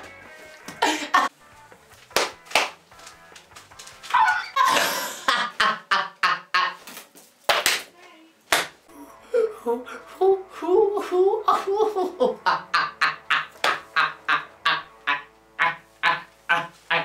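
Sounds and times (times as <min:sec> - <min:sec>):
young man laughing loudly: 0:00.8 - 0:01.3, 0:04.2 - 0:06.8, 0:10.6 - 0:17.0.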